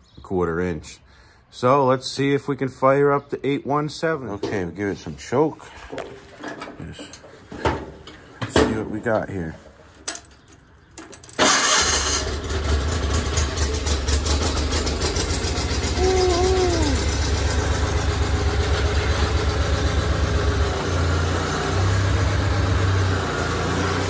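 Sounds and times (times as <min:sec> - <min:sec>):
garden tractor engine running: 0:11.4 - 0:24.0.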